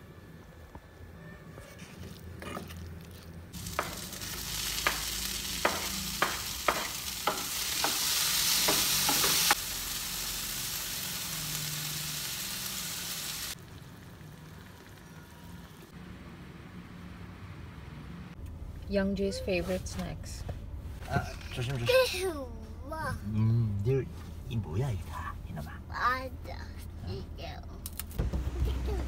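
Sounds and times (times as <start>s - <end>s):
food sizzling in a frying pan: 3.6s - 15.8s
wooden spatula knocking on pan: 4.8s - 8.0s.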